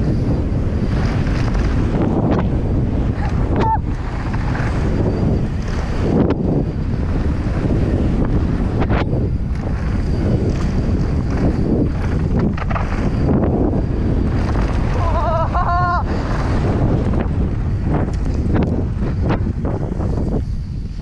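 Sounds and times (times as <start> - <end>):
wind buffeting microphone: 0.0 - 21.0
wavering high tone: 3.2 - 16.4
bike knocks and rattles: 8.2 - 13.7.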